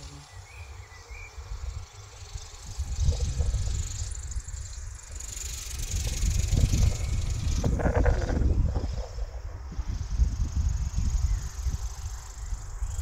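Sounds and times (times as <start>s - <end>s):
distant model helicopter rotor hiss: 0.0s - 13.0s
low uneven rumbling: 5.7s - 10.9s.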